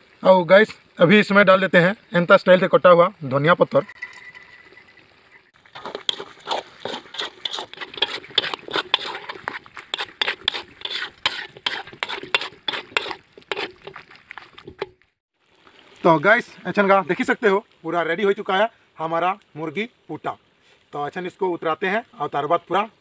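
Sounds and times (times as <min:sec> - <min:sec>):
spatula scraping metal wok: 0:05.8 - 0:14.9.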